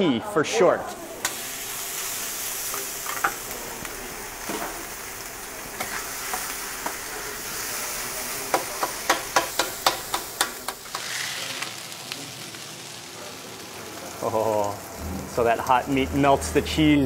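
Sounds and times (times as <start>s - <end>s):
meat sizzling on a griddle: 0.6s - 17.0s
metal scraper knocking on hot plate: 8.5s - 10.8s.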